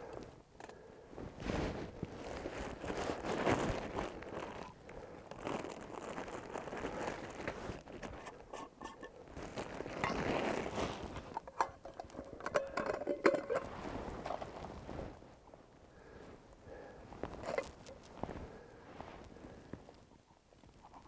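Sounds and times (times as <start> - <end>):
plastic bag rustling: 1.4 - 15.3.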